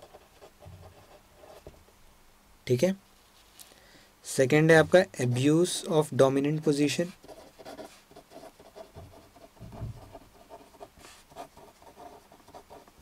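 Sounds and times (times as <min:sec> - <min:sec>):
pen scratching on paper: 0:00.0 - 0:01.7, 0:07.0 - 0:13.0
soft low thumps: 0:09.0 - 0:10.2.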